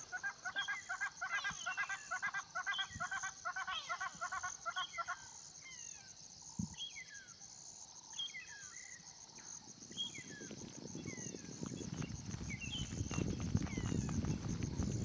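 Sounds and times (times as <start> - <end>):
high insect chorus: 0.0 - 15.0
low rustling crackling: 9.8 - 15.0.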